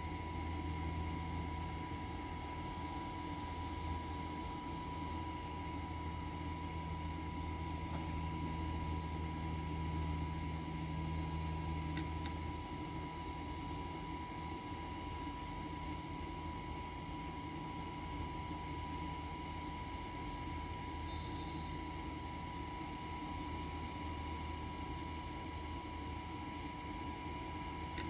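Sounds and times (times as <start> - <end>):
thin steady high tone: 20.7 - 22.8.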